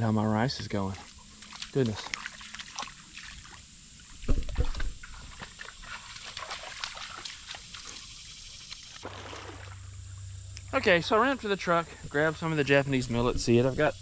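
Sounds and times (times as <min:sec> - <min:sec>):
water sloshing in a field: 0:00.0 - 0:13.9
splashy crackles: 0:01.0 - 0:03.6, 0:04.4 - 0:08.1, 0:08.7 - 0:10.0
heavy low bump: 0:10.0 - 0:14.0.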